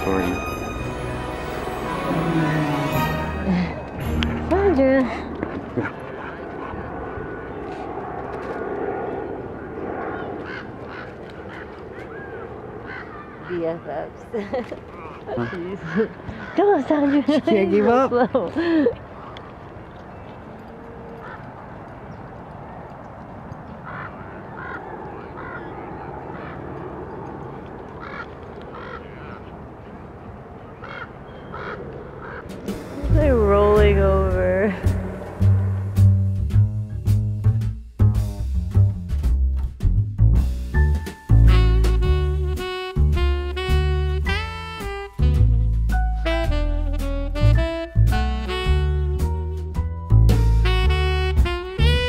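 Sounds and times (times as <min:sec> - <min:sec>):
harsh animal calls: 0:10.4 - 0:13.9, 0:28.0 - 0:29.5, 0:30.8 - 0:33.1
engine-like rumble: 0:31.8 - 0:40.6.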